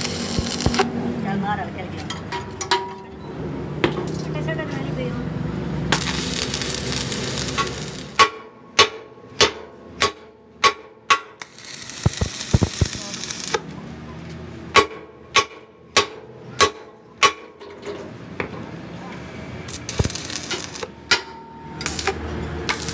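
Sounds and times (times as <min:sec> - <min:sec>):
arc welding hiss: 0:00.0 - 0:00.8, 0:05.9 - 0:08.2, 0:11.4 - 0:13.6, 0:19.7 - 0:20.9, 0:21.8 - 0:22.9.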